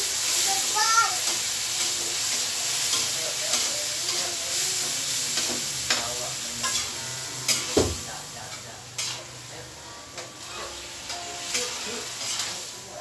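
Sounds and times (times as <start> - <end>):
food sizzling in a pan: 0.0 - 13.0
utensil scraping a pan: 8.5 - 9.4, 10.2 - 12.7.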